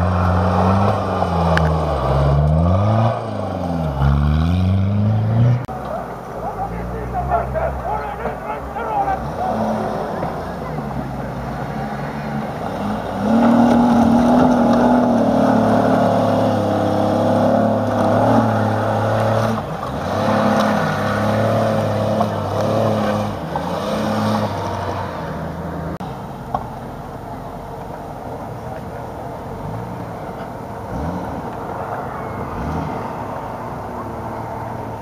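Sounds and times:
engine revving hard: 0.0s - 5.7s, 6.6s - 10.8s, 11.5s - 25.4s.

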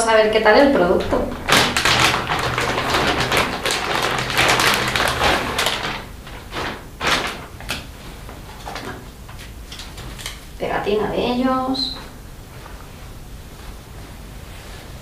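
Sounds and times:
plastic bag crinkling: 0.8s - 10.6s.

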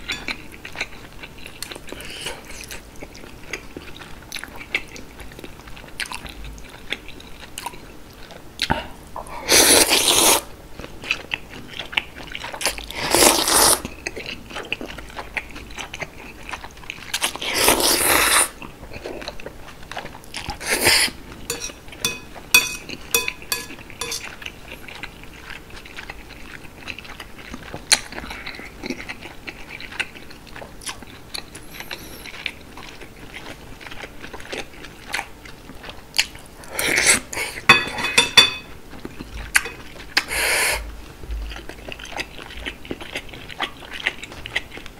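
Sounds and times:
chewing and mouth clicks: 0.0s - 8.8s, 18.6s - 37.2s, 41.5s - 44.9s
wet noodle slurps: 9.5s - 10.5s, 12.9s - 13.8s, 17.2s - 18.6s.

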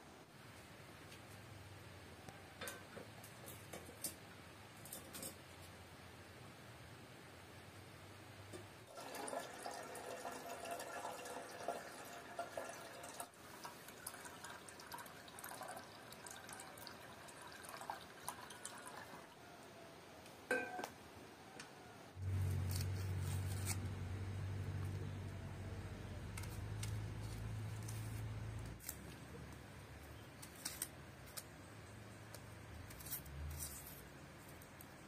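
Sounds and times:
water pouring into a pot: 8.9s - 19.4s.

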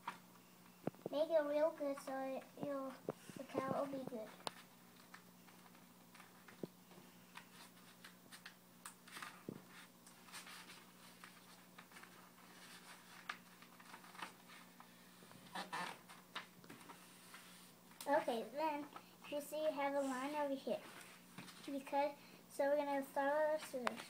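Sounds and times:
paper sheet rustling: 7.3s - 15.0s.

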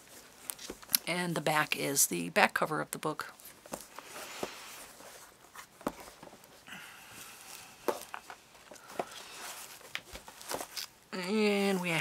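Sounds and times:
paper rustling: 7.4s - 11.0s.

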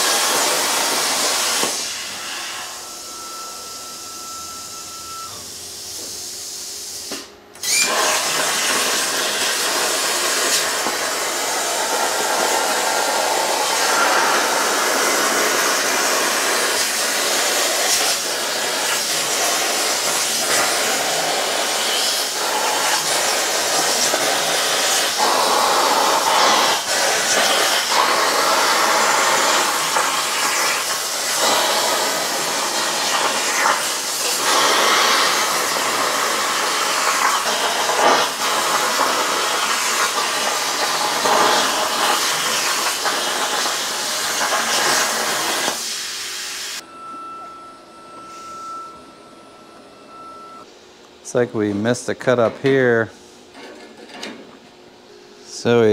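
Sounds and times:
plasma cutter hissing and crackling: 0.0s - 2.9s, 5.8s - 46.8s.

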